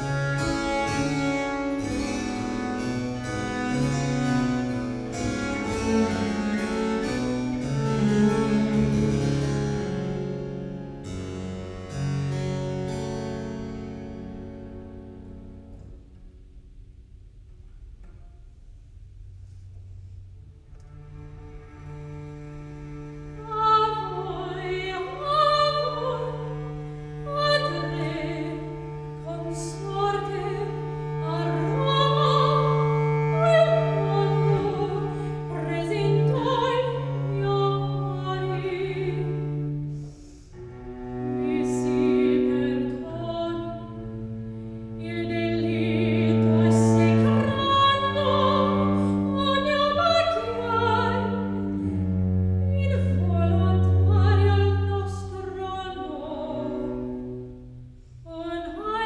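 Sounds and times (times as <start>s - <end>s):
cello sustained bass notes: 0.0s - 59.0s
soprano singing: 23.3s - 39.9s, 41.0s - 57.5s, 58.2s - 59.0s.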